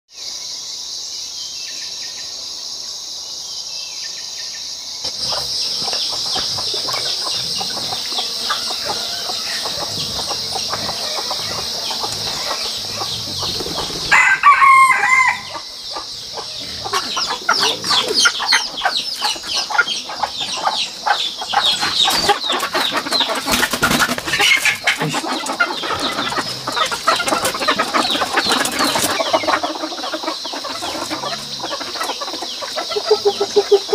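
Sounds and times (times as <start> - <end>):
wings flapping: 5.0 - 14.6, 21.8 - 31.2
chickens clucking: 5.0 - 33.9
rooster crowing: 5.2 - 21.6.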